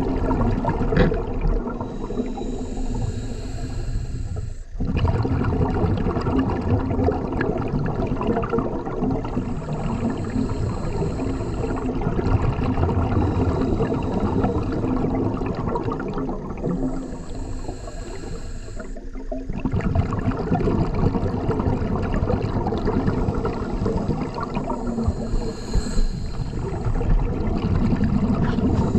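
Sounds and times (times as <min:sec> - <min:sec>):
bubbling exhaled air underwater: 0:00.0 - 0:28.9
regulator inhalation hiss: 0:01.8 - 0:04.8, 0:09.3 - 0:12.0, 0:13.0 - 0:15.2, 0:16.6 - 0:19.1, 0:23.0 - 0:27.2, 0:28.3 - 0:28.9.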